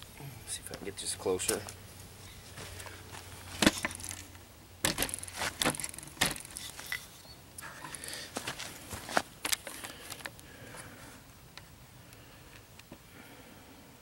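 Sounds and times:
footsteps on grass and leaves: 2.0s - 4.2s, 8.2s - 9.3s.

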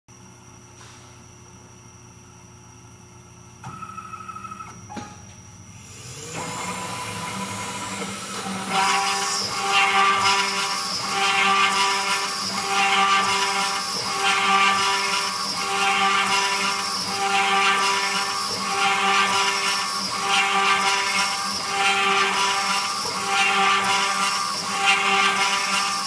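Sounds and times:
router spindle spinning up: 5.7s - 26.0s
router bit cutting wood whine: 5.8s - 26.0s.

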